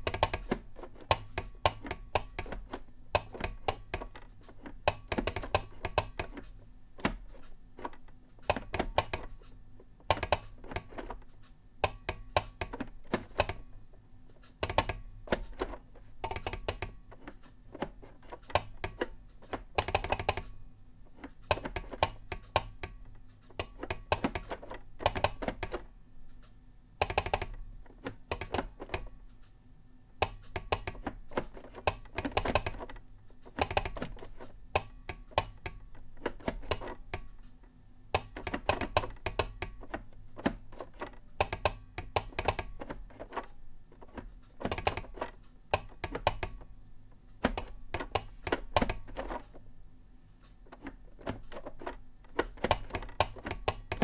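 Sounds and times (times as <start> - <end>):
telegraph key clicking: 0.0 - 4.2, 10.1 - 11.2, 11.8 - 13.7, 14.5 - 20.6, 21.2 - 25.8, 27.0 - 29.1, 30.2 - 37.6, 38.2 - 46.7, 47.4 - 49.6, 50.7 - 54.0.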